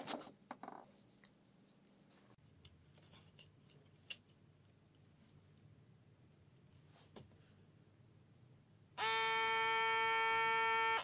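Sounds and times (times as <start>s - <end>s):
plastic parts clicking and scraping: 2.6s - 5.1s.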